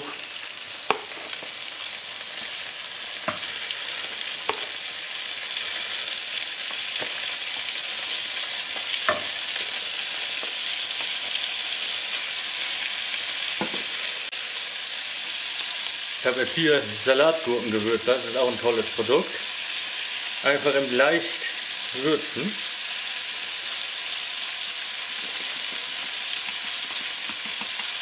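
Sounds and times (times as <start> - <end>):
chicken frying sizzle: 0.0 - 28.0
wooden tongs clicking: 25.3 - 28.0.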